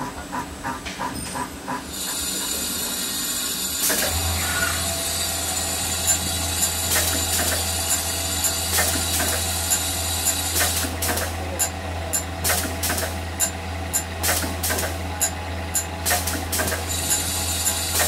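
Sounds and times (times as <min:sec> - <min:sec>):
low motor hum: 0:03.9 - 0:18.0.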